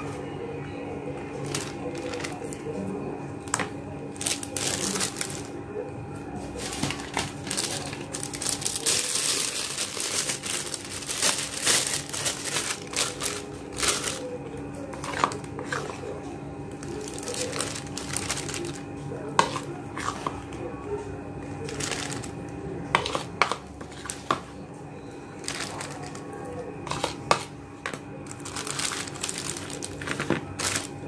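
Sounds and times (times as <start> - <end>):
plastic bag crinkling: 1.4 - 2.7, 4.1 - 5.6, 6.5 - 14.3, 16.8 - 20.3, 21.5 - 22.4, 25.4 - 27.3, 28.2 - 31.0.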